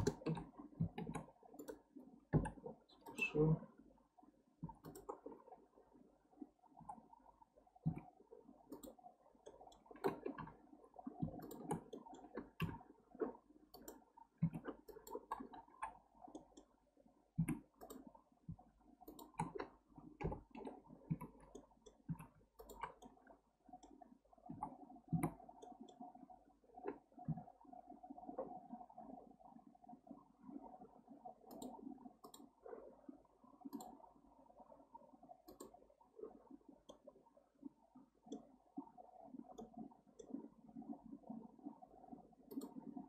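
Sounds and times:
faint steady hum: 0.0 - 43.0
mouse and keyboard clicks: 4.7 - 5.3, 11.2 - 12.8, 19.0 - 23.2, 42.5 - 42.8.

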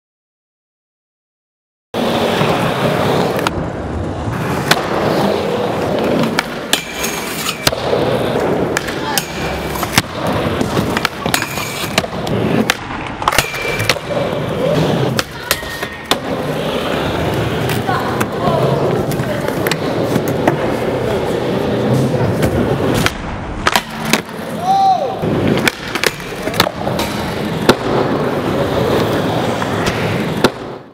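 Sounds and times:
skateboard wheels rolling on ramp: 2.0 - 13.3, 16.1 - 30.9.

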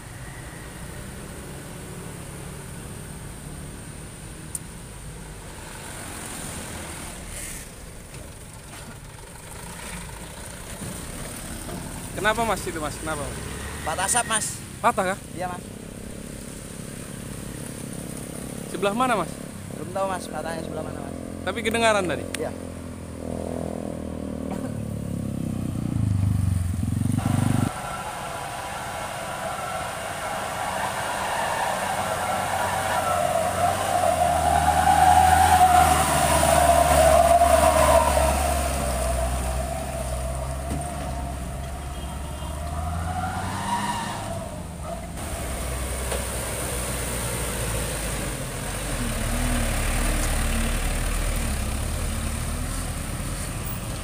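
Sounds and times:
truck engines working under load: 0.0 - 54.0.

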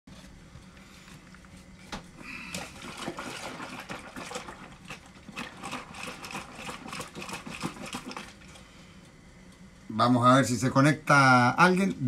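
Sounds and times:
steady low hum: 0.1 - 12.0
liquid sloshing and splashing: 2.5 - 8.6.

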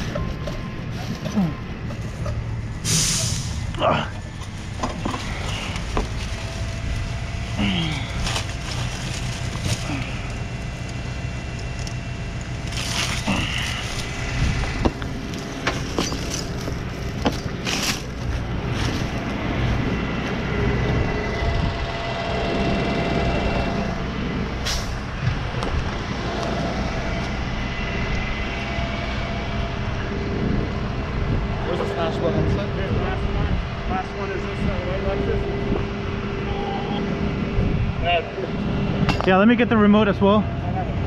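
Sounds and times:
truck engine idling: 0.0 - 41.0
rustling through dry leaves: 0.8 - 20.3.

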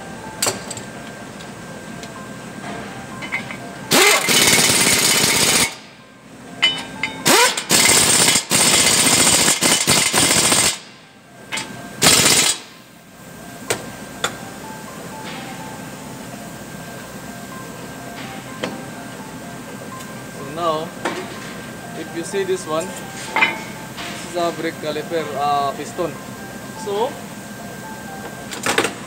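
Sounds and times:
pneumatic air tool running: 3.9 - 5.9, 7.2 - 11.0, 12.0 - 12.8.

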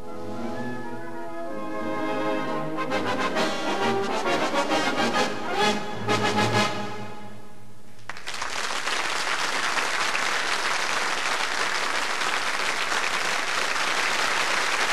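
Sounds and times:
audience applause: 8.1 - 14.9.

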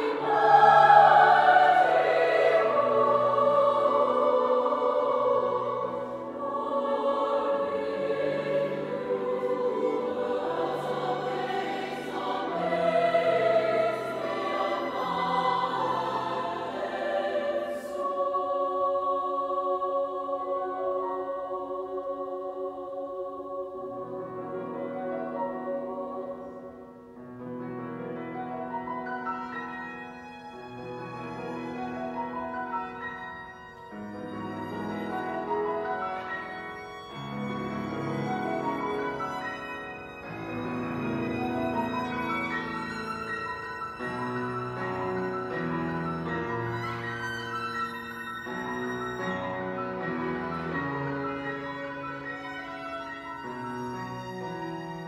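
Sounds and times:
violin: 0.0 - 21.6, 23.2 - 55.0
cello: 0.0 - 55.0
choir singing: 0.0 - 55.0
piano: 0.0 - 55.0
violin playing slow melody: 29.4 - 55.0.

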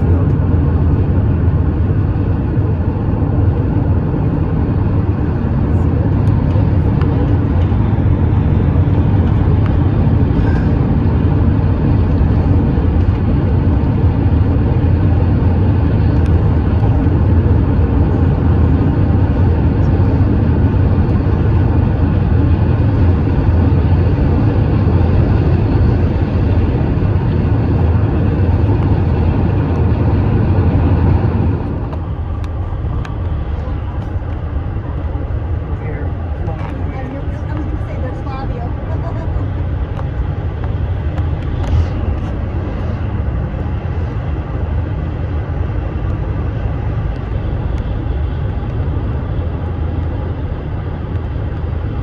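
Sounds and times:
car road and engine noise: 0.0 - 52.0.

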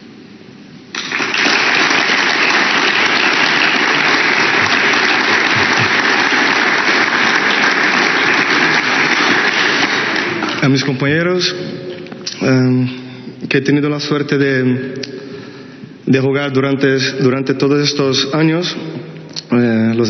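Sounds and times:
audience applauding: 0.9 - 11.0.

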